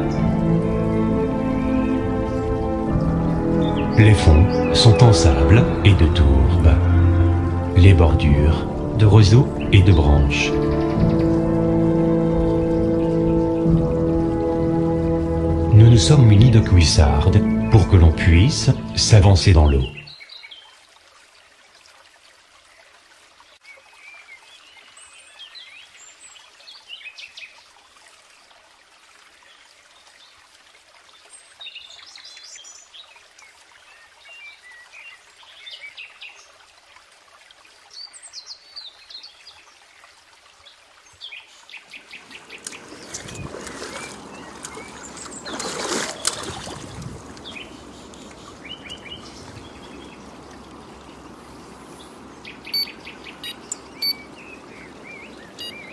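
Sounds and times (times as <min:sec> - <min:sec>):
small birds chirping: 0:37.8 - 0:55.9
water sloshing and splashing: 0:39.8 - 0:55.9.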